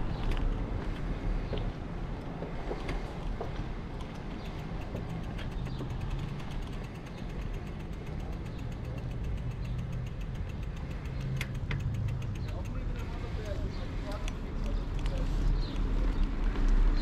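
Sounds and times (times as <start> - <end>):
vehicle engine rumble: 0.0 - 17.0
fast even ticking: 4.0 - 14.8.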